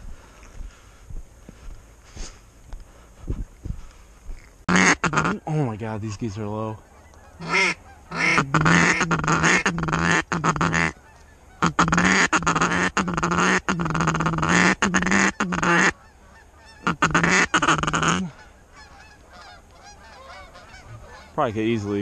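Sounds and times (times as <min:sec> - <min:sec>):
geese honking: 0:04.7 - 0:22.0.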